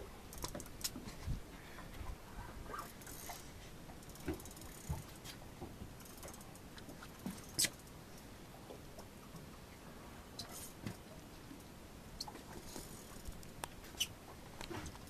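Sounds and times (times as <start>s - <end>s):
fishing reel ratcheting: 0.3s - 0.9s, 2.9s - 3.4s, 4.0s - 5.0s, 6.0s - 6.6s.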